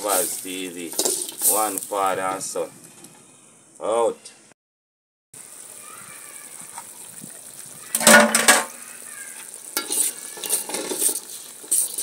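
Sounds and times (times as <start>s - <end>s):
low sizzle: 0.0s - 4.4s, 5.4s - 12.0s
metal spoon scraping a pot: 0.1s - 1.8s, 9.8s - 12.0s.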